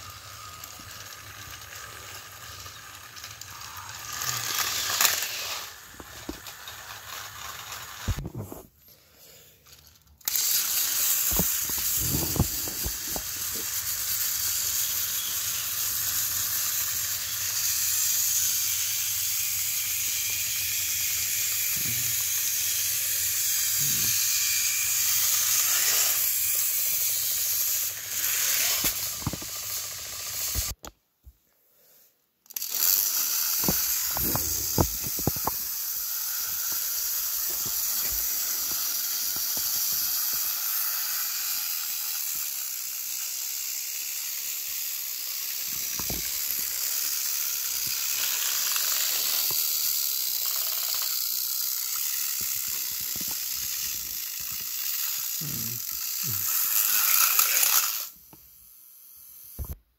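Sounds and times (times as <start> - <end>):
toy trains whirring: 0.0 - 30.9, 31.8 - 59.8.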